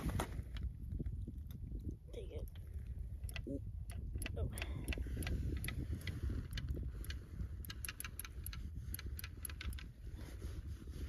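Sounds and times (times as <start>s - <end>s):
wind rumble on microphone: 0.0s - 11.0s
fishing line ticking and clicking: 1.4s - 10.0s.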